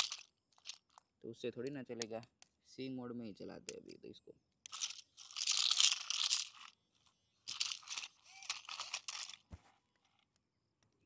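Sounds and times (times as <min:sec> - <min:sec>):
toy car scraping over stones: 0:07.6 - 0:09.5.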